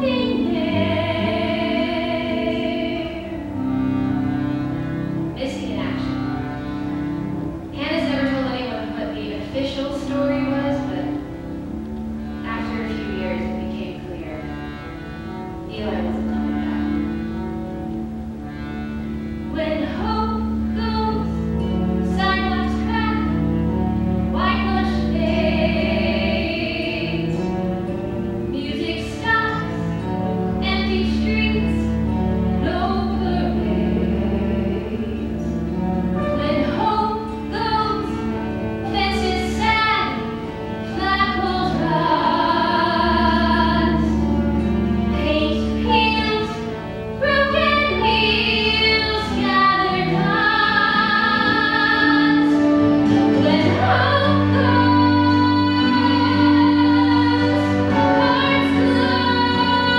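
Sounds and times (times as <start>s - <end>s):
woman singing with vibrato: 0.0s - 4.4s, 19.5s - 23.5s, 24.3s - 27.5s, 28.5s - 32.0s, 32.6s - 35.6s, 36.4s - 59.9s
instrumental accompaniment: 0.0s - 59.9s.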